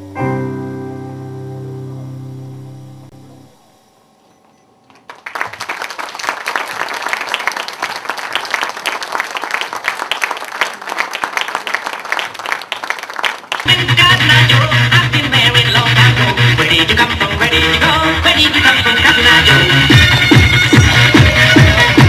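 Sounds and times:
music: 0.0 - 3.6, 13.6 - 22.0
audience applauding: 4.9 - 13.8.

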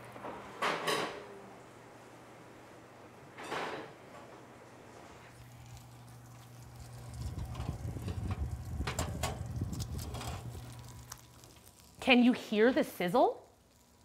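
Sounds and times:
steady low hum: 4.0 - 12.1
pizzas sizzling and crackling: 4.9 - 14.0.

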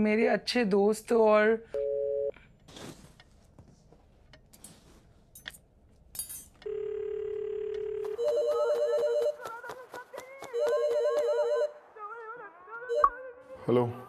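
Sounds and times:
phone ringtone trilling melody: 10.5 - 11.8, 12.9 - 13.2.

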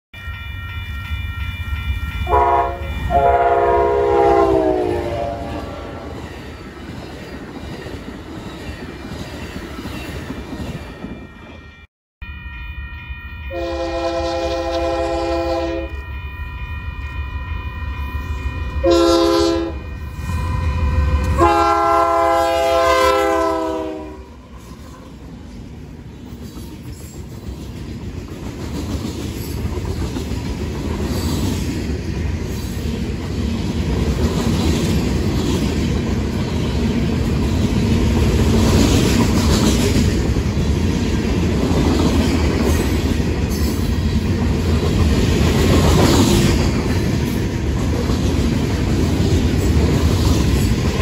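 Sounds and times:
train air horn blasts: 2.2 - 6.2, 13.5 - 16.0, 18.8 - 25.1
train wheel noise: 13.0 - 51.0.

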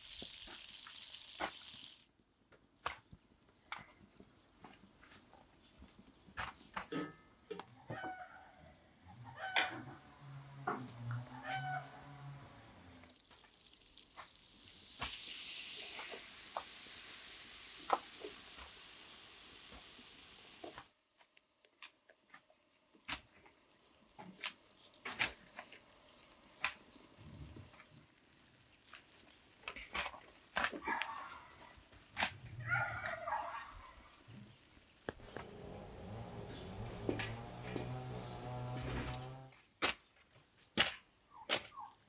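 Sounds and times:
soft steady hiss: 0.0 - 6.5.

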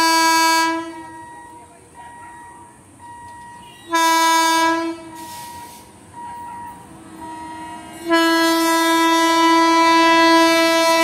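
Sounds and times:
locomotive horn blasts: 0.0 - 1.2, 3.6 - 5.4, 7.2 - 11.0.

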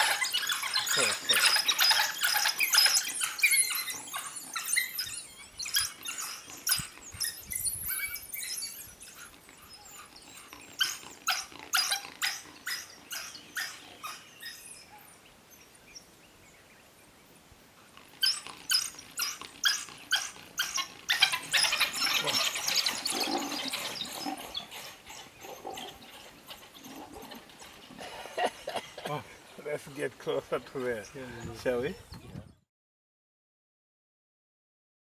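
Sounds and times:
wild dogs twittering calls: 0.0 - 16.1, 17.8 - 32.1.

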